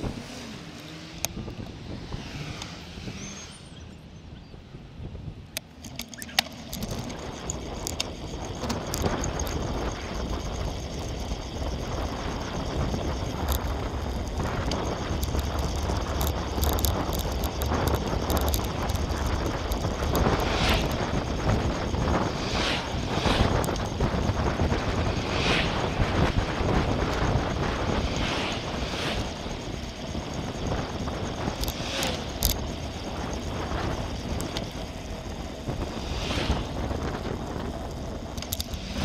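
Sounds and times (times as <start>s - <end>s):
bicycle tyres on asphalt: 0.0s - 39.0s
wind rumble on microphone: 0.0s - 39.0s
sharp clicks from bicycle: 5.5s - 22.2s, 29.8s - 39.0s.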